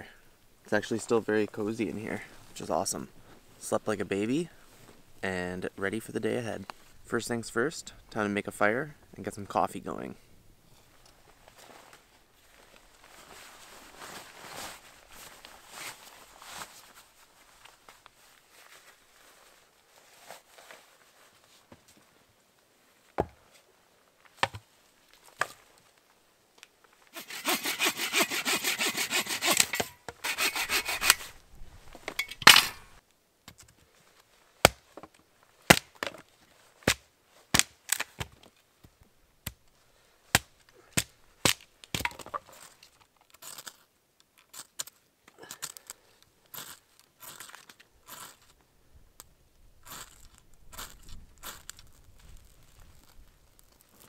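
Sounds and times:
kindling scrapes and crackles: 11.4 - 21.6, 42.4 - 48.6, 49.8 - 54.0
hand saw rasping through wood: 27.2 - 31.3.

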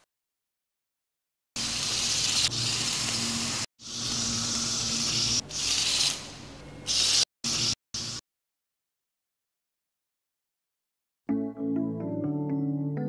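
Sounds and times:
toy robot tank motors whirring: 1.7 - 6.3.

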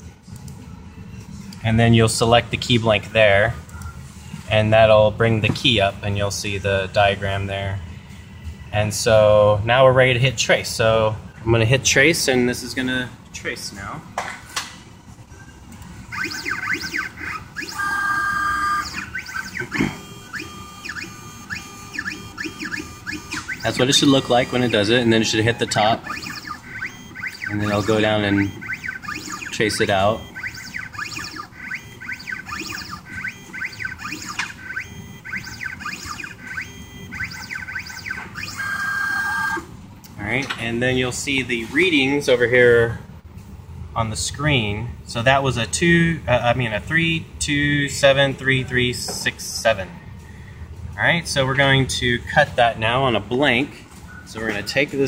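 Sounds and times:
two-tone hum: 15.0 - 39.9
stepper motors whining: 15.7 - 39.8.

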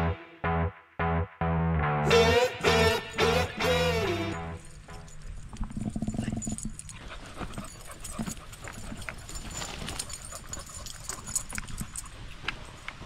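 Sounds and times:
dogs panting: 4.8 - 13.0
paws clicking on gravel: 4.9 - 13.0.

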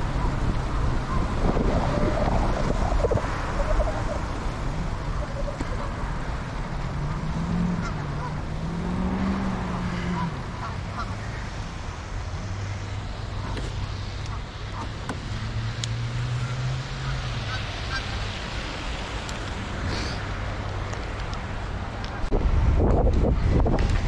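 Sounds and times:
wind rushing: 0.0 - 6.0
bicycle riding noise: 0.0 - 24.0.

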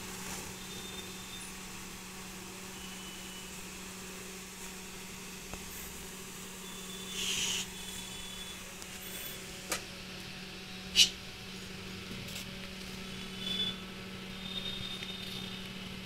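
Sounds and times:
short hiss: 7.1 - 7.8.

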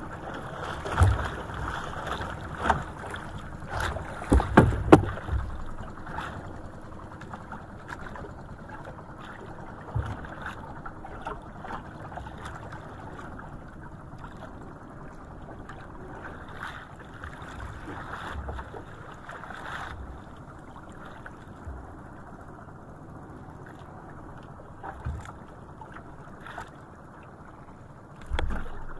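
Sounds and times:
water washing around boat: 0.0 - 28.9
wind: 0.0 - 28.9
dull thump: 4.3 - 5.6.

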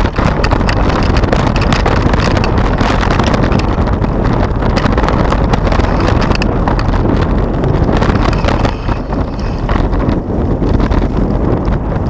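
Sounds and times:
bike clicks and rattles: 0.0 - 12.0
wind and tyres rumbling: 0.0 - 12.0.

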